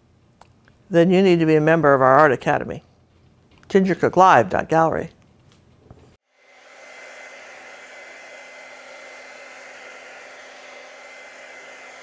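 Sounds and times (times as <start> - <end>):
hair dryer blowing: 6.2 - 12.0.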